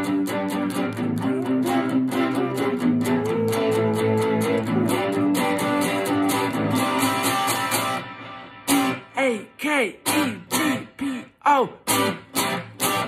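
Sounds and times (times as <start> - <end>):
electric guitar lead melody: 0.0 - 9.2, 11.8 - 13.0.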